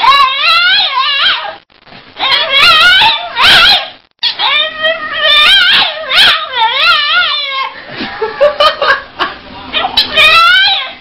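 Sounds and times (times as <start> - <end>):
dog howling and whining: 0.0 - 1.6, 2.2 - 7.8, 9.7 - 11.0
dog yipping: 0.0 - 1.6, 2.2 - 7.7, 9.8 - 11.0.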